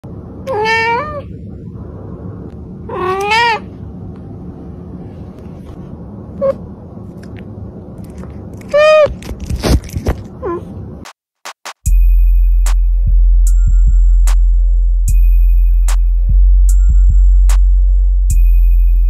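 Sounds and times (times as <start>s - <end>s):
cat meowing: 0.4s - 1.3s, 2.9s - 3.8s, 8.7s - 9.2s.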